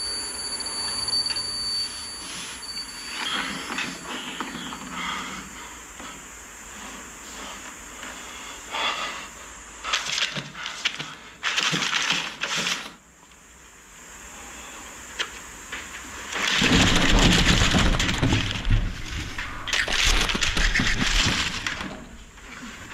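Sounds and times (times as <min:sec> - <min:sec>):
paper crinkling and rustling: 0:09.9 - 0:13.0, 0:16.3 - 0:22.9.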